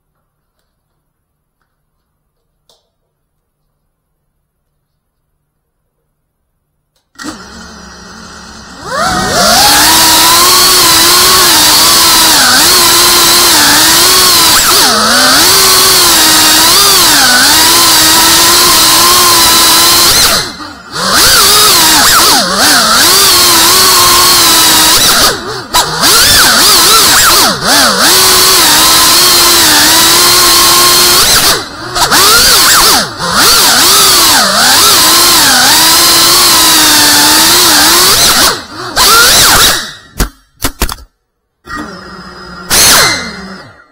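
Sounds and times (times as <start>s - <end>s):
drone motors whining: 7.2s - 40.2s, 41.6s - 43.9s.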